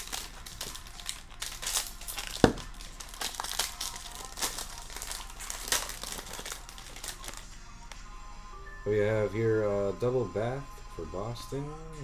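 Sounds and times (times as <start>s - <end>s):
foil wrapper crinkling and tearing: 0.0s - 7.5s.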